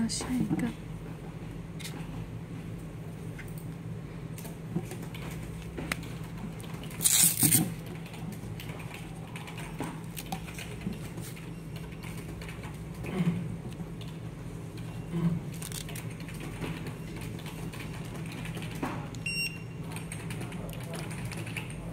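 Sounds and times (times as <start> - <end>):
steady low hum: 0.0 - 21.9
hook-and-loop strap ripping: 7.0 - 7.7.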